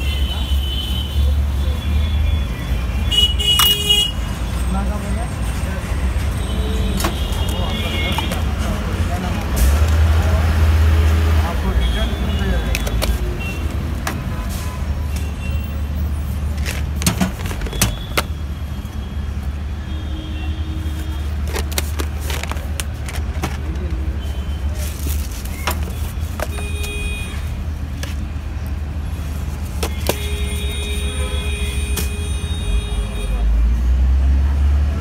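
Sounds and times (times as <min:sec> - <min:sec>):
street traffic rumble: 0:00.0 - 0:35.0
sharp clicks and knocks: 0:16.6 - 0:18.4.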